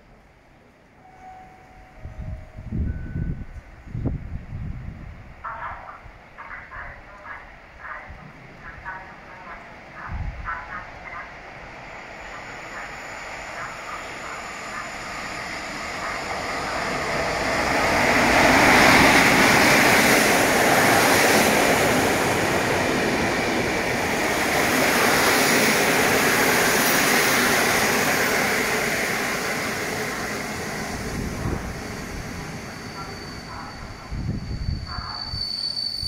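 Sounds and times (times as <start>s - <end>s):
train wheels rushing on rails: 10.0s - 36.0s.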